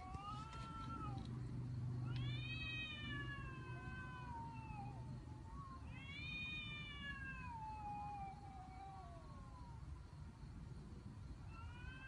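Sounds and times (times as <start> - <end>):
cat yowling: 2.1 - 9.8.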